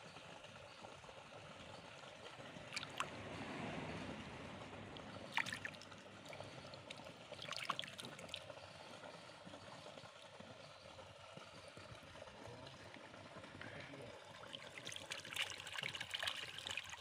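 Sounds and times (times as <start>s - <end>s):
water splashing and sloshing: 1.5s - 10.4s, 14.1s - 17.0s.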